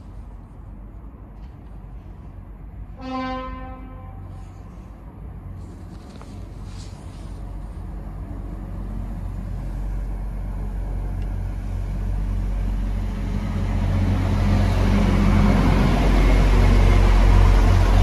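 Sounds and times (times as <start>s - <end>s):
train engine rumble: 0.0s - 18.0s
train wheels on rail: 3.8s - 18.0s.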